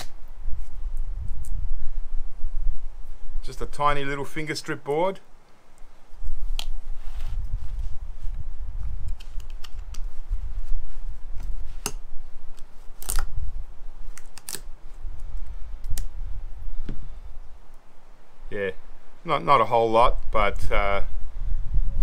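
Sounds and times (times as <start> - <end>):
sharp clicks or snaps: 6.5 - 6.8, 9.0 - 10.1, 12.6 - 13.4, 14.1 - 14.7, 15.8 - 16.2.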